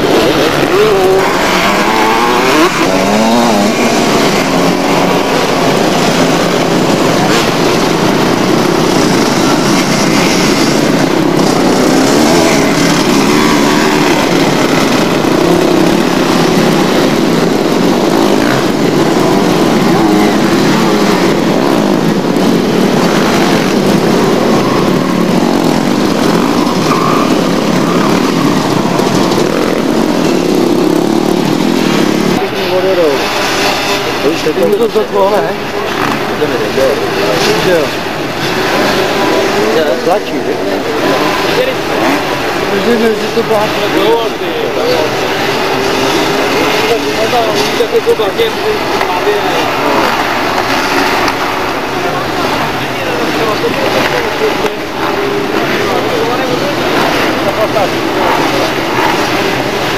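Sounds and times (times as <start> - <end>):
motocross bikes revving past: 0.0 - 59.9.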